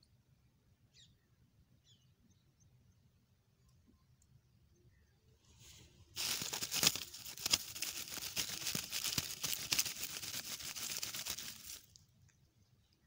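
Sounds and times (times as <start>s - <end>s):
dry straw crackling: 6.2s - 12.0s.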